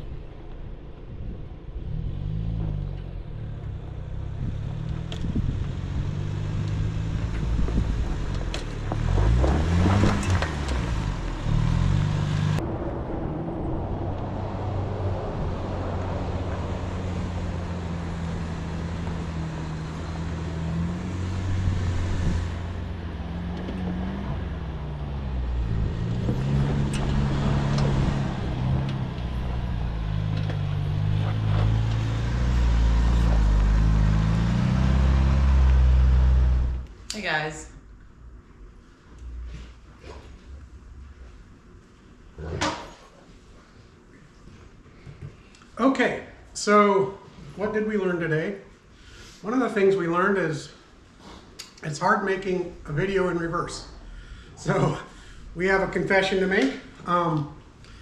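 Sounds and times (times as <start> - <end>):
engine pulling at crawling speed: 1.6 - 36.9
tyres crunching on dirt and rock: 7.0 - 12.2.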